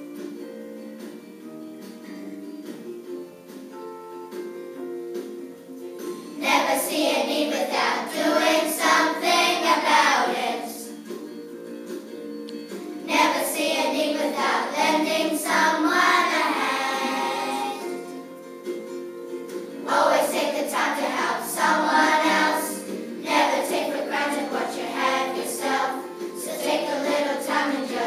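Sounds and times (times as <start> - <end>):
guitar accompaniment: 0.0 - 28.0
children singing a hymn: 6.4 - 10.9, 13.1 - 17.9, 19.8 - 28.0.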